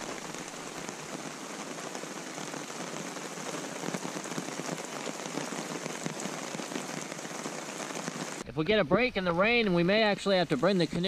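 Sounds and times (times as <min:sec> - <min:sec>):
raindrops ticking: 0:00.0 - 0:08.4
rain falling: 0:00.0 - 0:08.5.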